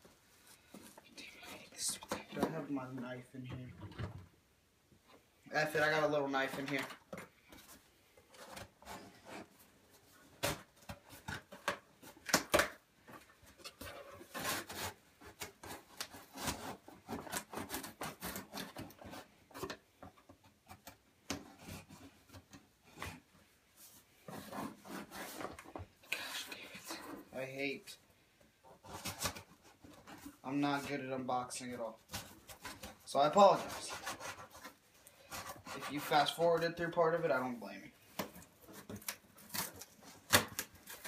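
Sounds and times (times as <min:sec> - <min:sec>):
knife cutting packing tape: 0:14.3 - 0:19.2, 0:38.7 - 0:41.0
cardboard rubbing and flexing: 0:23.9 - 0:27.4.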